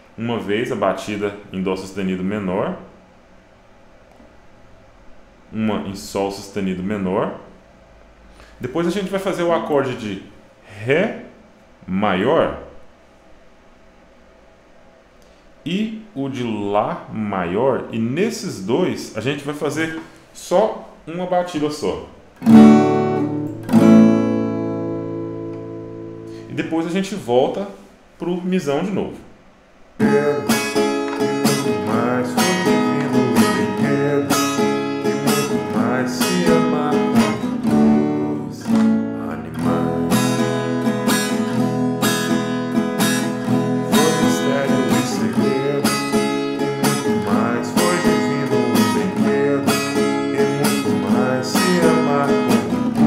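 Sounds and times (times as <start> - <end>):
acoustic guitar strumming chords: 22.4 - 26.8, 30.0 - 53.0.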